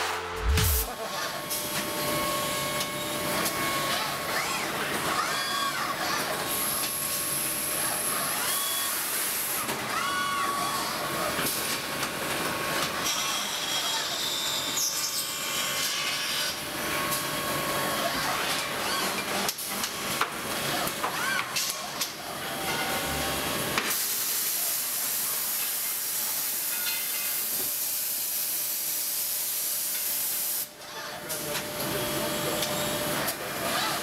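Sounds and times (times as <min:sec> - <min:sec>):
machinery clanks and clicks: 0:17.9 - 0:24.0.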